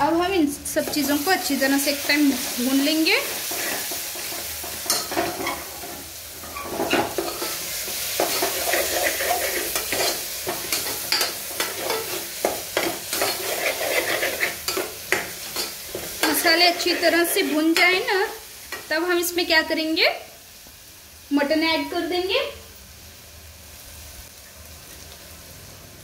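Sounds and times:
spices sizzling in oil: 0.0 - 26.0
metal ladle scraping pot: 4.9 - 7.6, 8.2 - 12.2, 12.8 - 17.2.

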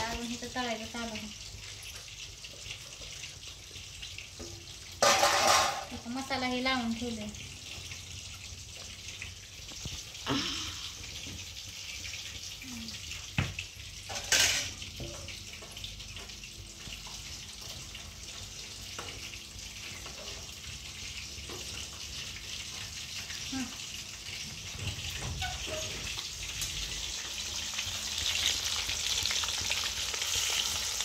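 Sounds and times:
fish sizzling in hot oil: 0.0 - 31.0
metal ladle clinking on pan: 5.0 - 5.9.

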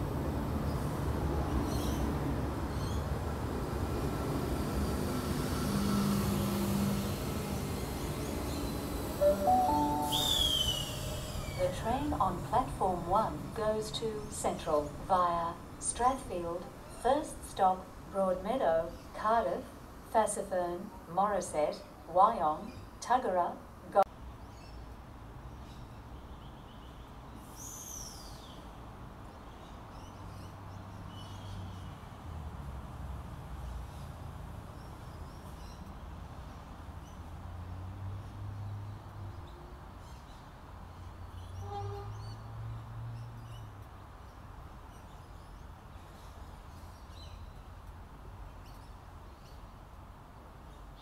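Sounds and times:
birds calling: 8.4 - 12.0
falling whistled bird call: 9.8 - 11.6.

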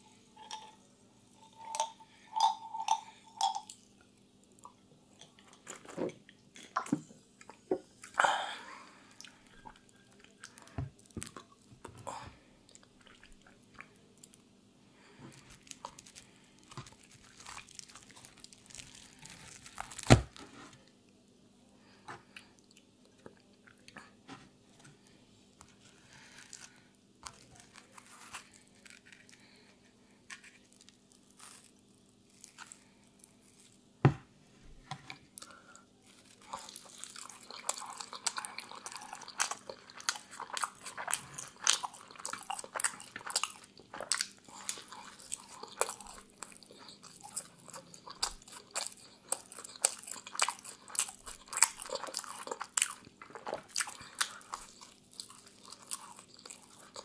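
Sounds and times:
soft tearing and eating: 8.9 - 20.2, 25.0 - 33.8, 35.2 - 57.0.

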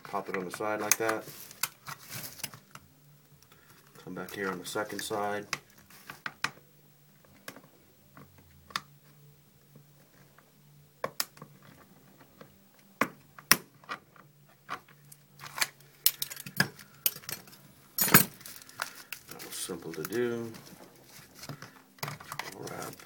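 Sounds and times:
metal tools clicking and scraping: 15.4 - 19.4.

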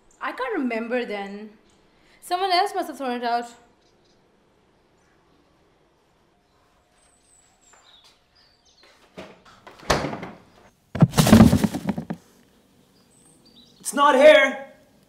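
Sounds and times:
loud household bangs: 9.8 - 10.4
clattering rattle: 11.0 - 12.2.

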